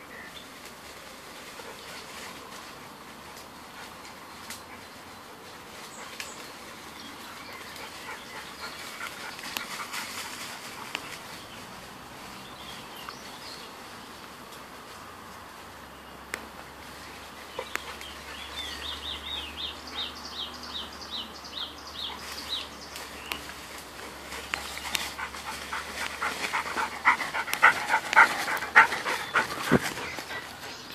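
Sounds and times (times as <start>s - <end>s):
dog panting: 24.0s - 30.9s.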